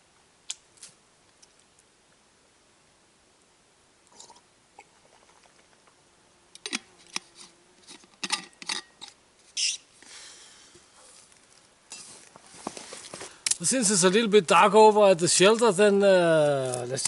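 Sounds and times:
soft rustling in backpack: 10.8s - 13.4s.

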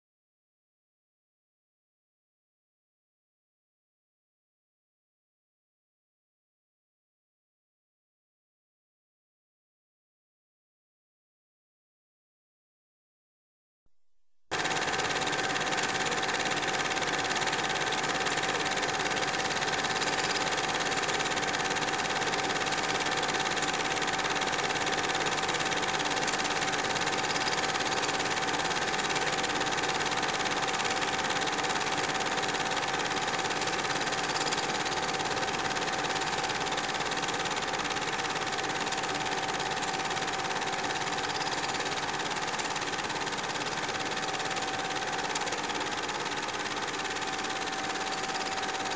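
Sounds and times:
film projector whirring: 14.5s - 48.9s.

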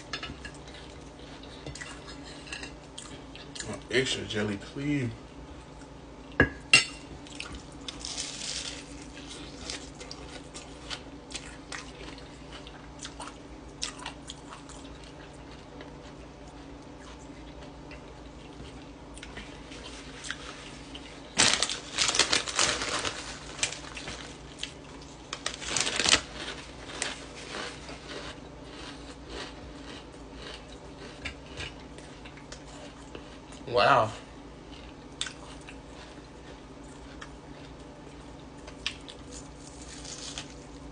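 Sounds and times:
crunchy bites and chewing: 7.2s - 33.6s, 34.6s - 40.9s.

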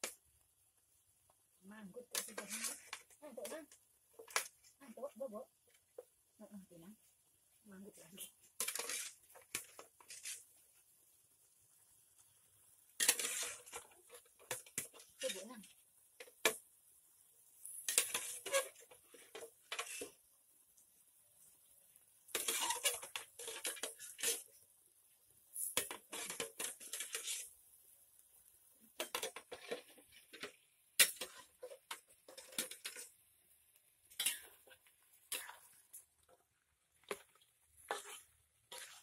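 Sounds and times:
metal spatula scraping a wok: 2.0s - 3.8s, 8.2s - 10.6s, 13.0s - 15.7s, 17.6s - 20.2s, 22.3s - 24.6s, 25.5s - 27.5s, 28.9s - 33.2s, 34.0s - 36.3s, 37.0s - 39.0s.

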